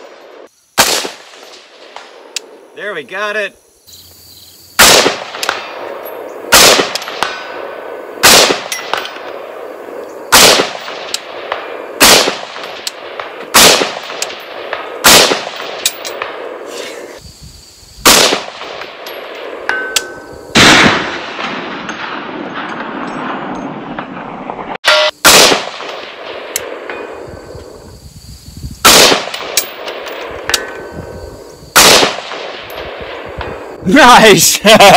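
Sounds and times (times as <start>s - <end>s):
rifle shots: 0.0s - 2.4s, 4.8s - 9.6s, 10.3s - 16.6s, 18.0s - 19.7s, 20.5s - 26.9s, 28.8s - 30.7s, 31.8s - 33.6s
metallic ping from steel target: 24.8s - 25.2s.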